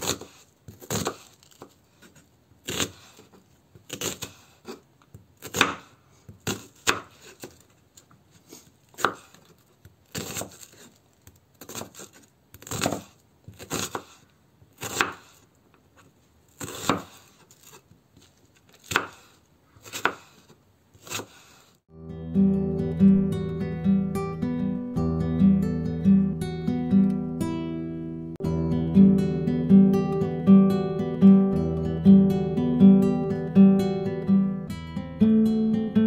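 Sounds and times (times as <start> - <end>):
knife slicing onion: 0.0 - 7.7, 8.3 - 21.8.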